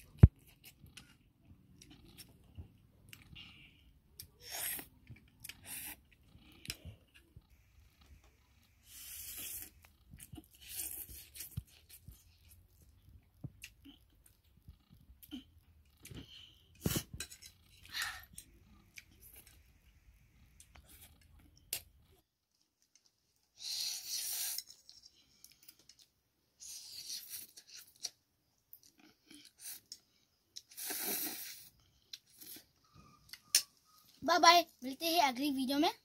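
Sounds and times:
person slurping noodles: 0:04.4 - 0:04.9, 0:08.8 - 0:11.4, 0:23.6 - 0:24.8, 0:30.6 - 0:32.6
person chewing: 0:08.9 - 0:19.6.

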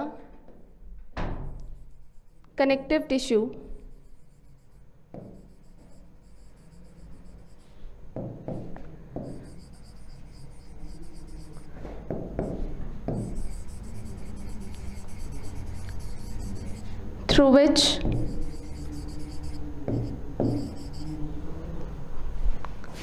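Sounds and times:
pen scratching on whiteboard screen: 0:03.8 - 0:07.8, 0:08.6 - 0:11.8, 0:12.4 - 0:21.2
pen taps and knocks: 0:10.3 - 0:16.8, 0:17.9 - 0:21.0.

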